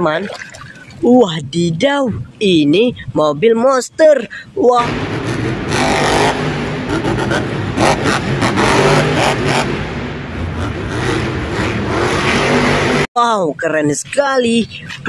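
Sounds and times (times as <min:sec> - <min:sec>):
truck engine revving: 0:04.8 - 0:13.1.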